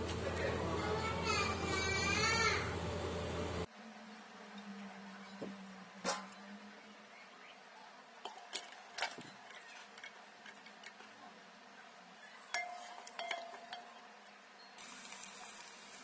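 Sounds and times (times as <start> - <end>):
onions frying hiss: 14.8 - 16.0.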